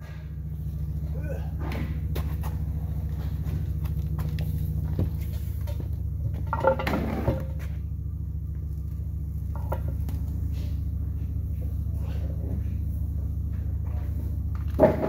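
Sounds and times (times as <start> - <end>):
low mechanical hum: 0.0 - 15.0
metal clanks: 5.3 - 7.8.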